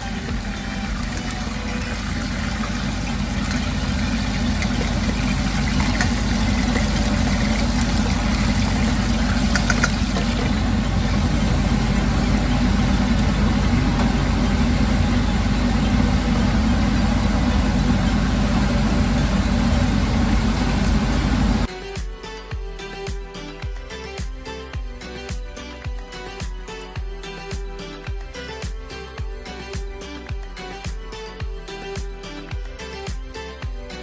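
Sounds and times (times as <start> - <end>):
oil sizzling and bubbling: 0.0 - 21.7.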